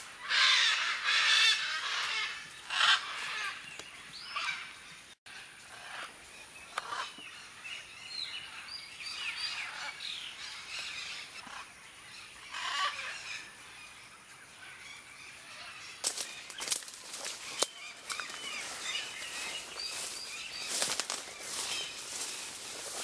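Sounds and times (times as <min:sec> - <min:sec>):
parrots squawking: 0:00.2 - 0:03.6, 0:12.5 - 0:13.3.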